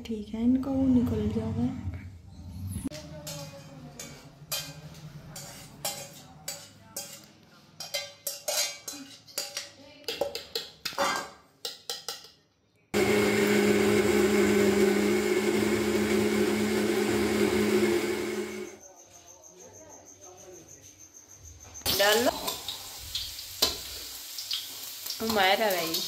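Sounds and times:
spoon clinking against steel pots: 3.2s - 12.4s
mixer grinder whirring: 13.0s - 18.8s.

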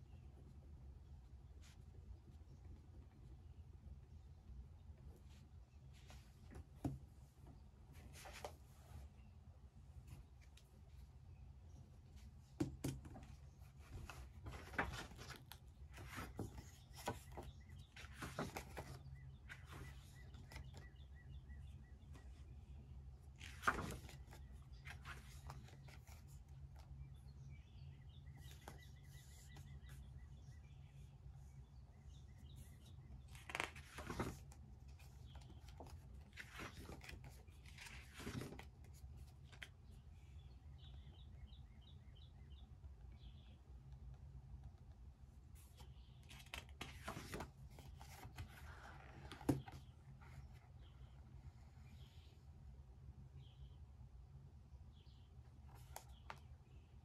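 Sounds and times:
paper rustling: 7.9s - 9.1s, 12.2s - 20.9s, 23.3s - 27.0s, 32.6s - 39.8s, 45.6s - 50.6s.

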